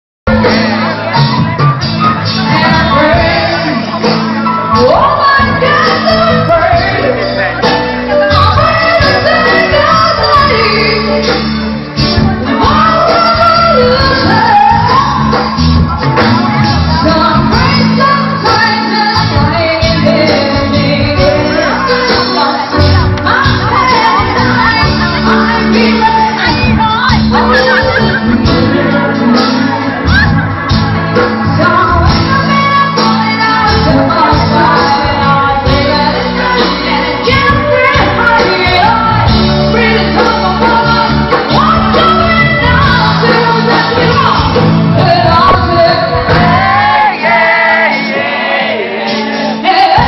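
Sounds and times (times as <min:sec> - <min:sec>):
electric bass and guitar: 0:00.3 - 0:50.0
live rock band playing: 0:00.3 - 0:50.0
female vocals: 0:16.8 - 0:30.5, 0:31.2 - 0:47.4.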